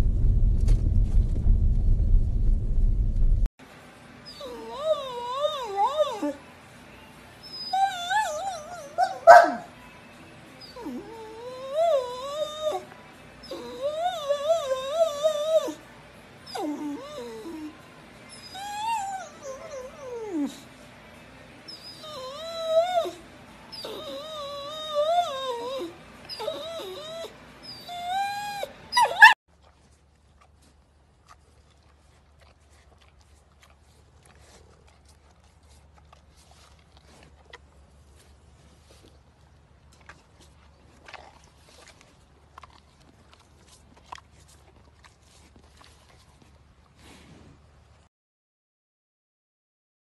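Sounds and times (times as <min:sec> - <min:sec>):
dog howling: 0:04.3 - 0:06.4, 0:07.5 - 0:09.7, 0:10.6 - 0:15.8, 0:21.7 - 0:29.4.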